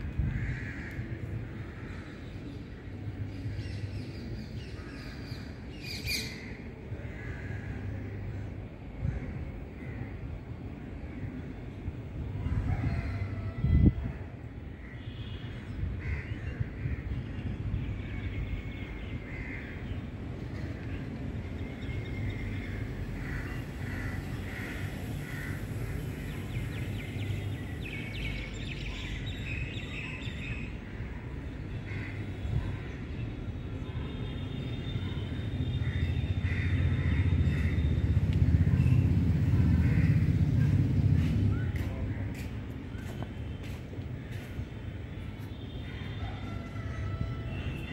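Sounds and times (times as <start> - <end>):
crows cawing: 0.2 - 2.2, 19.3 - 19.8, 23.2 - 26.2, 31.8 - 32.2, 35.8 - 37.9, 39.7 - 40.3
passing vehicle rumble: 35.6 - 43.0.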